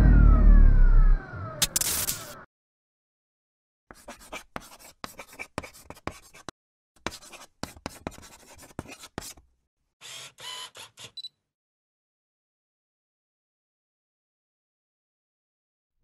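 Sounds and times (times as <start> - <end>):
pen scratching on paper: 3.9 - 9.4.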